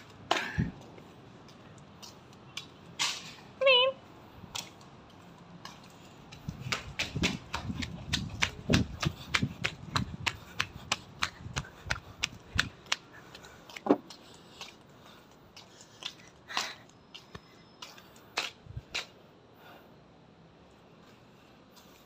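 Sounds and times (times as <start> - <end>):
running footsteps on concrete: 0.0 - 19.7, 21.0 - 22.0.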